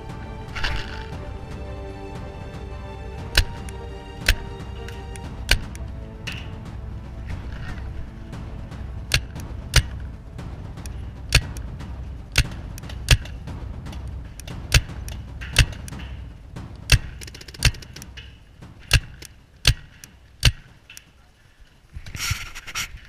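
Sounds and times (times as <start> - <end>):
low steady rumble: 0.0 - 22.0
paintball markers firing: 11.3 - 11.6, 16.9 - 18.1, 18.8 - 21.0.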